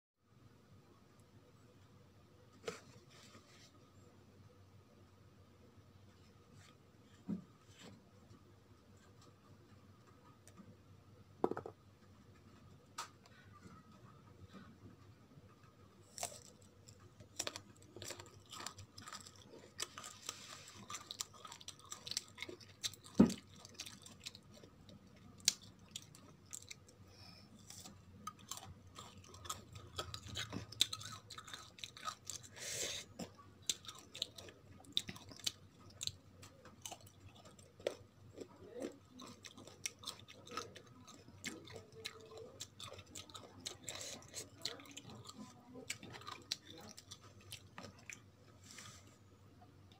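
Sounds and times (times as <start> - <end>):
crunchy biting and chewing: 16.0 - 48.3.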